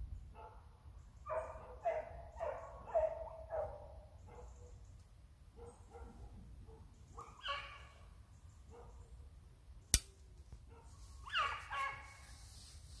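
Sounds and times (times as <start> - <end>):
hounds yelping: 1.2 - 4.6, 7.2 - 8.0, 11.2 - 12.2
dogs barking: 1.3 - 4.7, 5.6 - 8.0, 8.7 - 9.1, 10.7 - 12.2.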